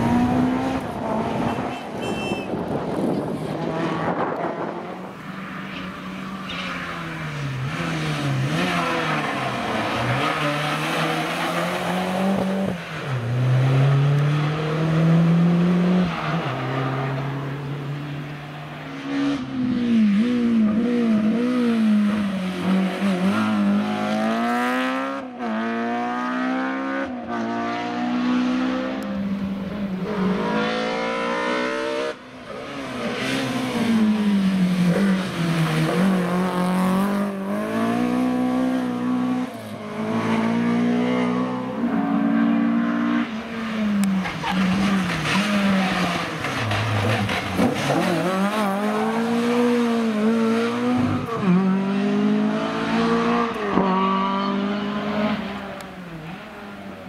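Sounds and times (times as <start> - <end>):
rally car engines revving: 0.0 - 57.0.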